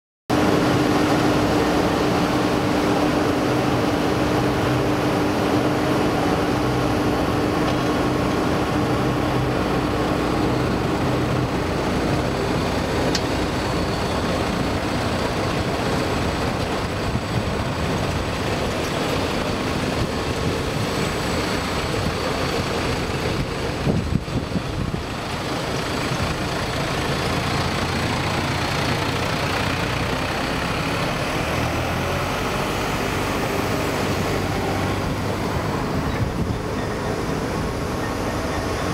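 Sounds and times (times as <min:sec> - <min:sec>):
diesel truck engine running: 0:00.3 - 0:38.9
engine hum: 0:00.3 - 0:38.9.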